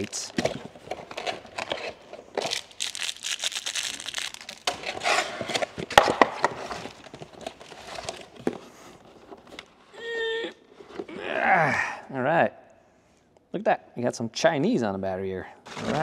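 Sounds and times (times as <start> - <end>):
plastic wrap crinkling: 0.4 - 8.4.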